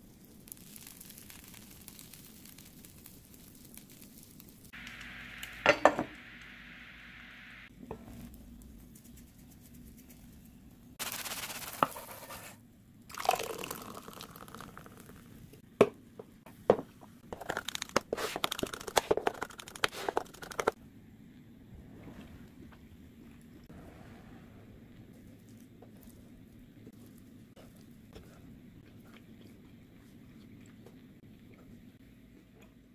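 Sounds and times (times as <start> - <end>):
food sizzling in pan: 0.3 - 7.7.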